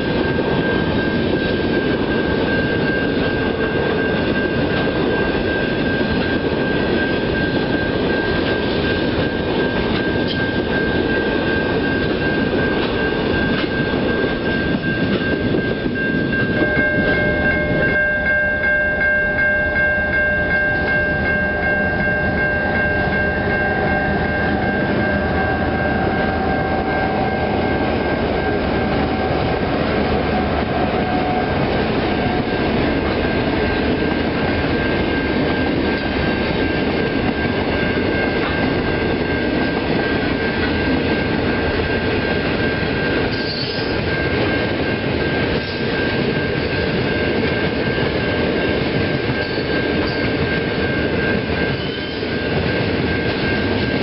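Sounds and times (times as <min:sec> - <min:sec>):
steady high tone: 0:00.0 - 0:54.0
train wagons rumbling and rattling: 0:00.0 - 0:54.0.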